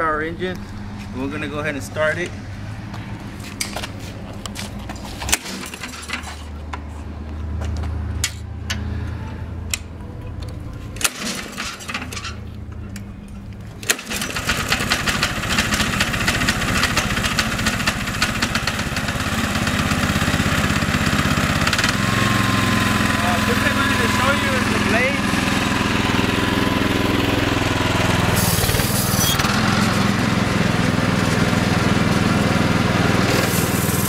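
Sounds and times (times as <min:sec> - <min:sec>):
brush cutter engine running: 0:13.8 - 0:34.0.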